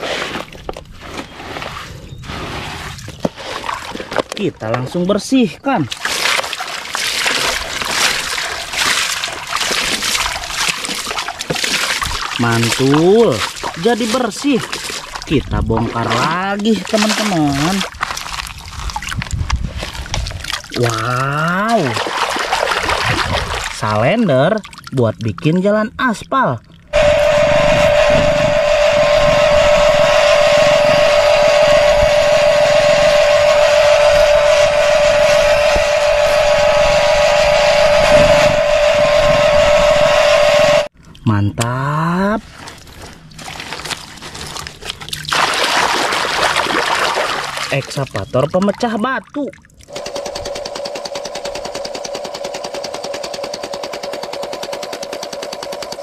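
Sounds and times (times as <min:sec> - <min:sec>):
water splashing on plastic toy: 0:05.8 - 0:25.6, 0:42.6 - 0:56.0
grinding noise: 0:26.9 - 0:40.9
toy road roller whining: 0:27.0 - 0:40.9.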